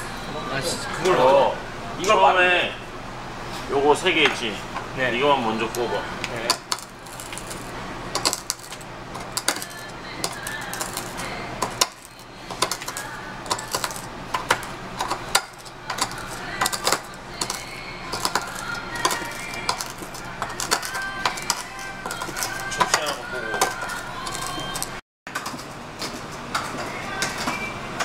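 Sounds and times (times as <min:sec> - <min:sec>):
metal utensils clinking on dishes: 0:05.7 - 0:25.6.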